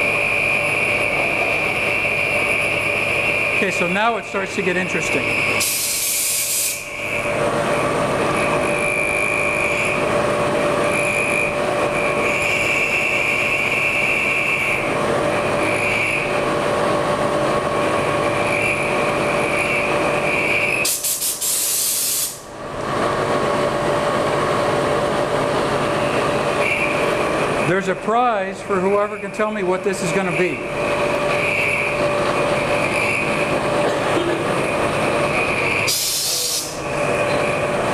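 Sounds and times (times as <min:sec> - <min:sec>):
high cutting whine: 0:00.0 - 0:37.9
milling machine humming: 0:00.0 - 0:37.9
short hissing bursts: 0:05.6 - 0:06.9, 0:20.8 - 0:22.4, 0:35.9 - 0:36.8.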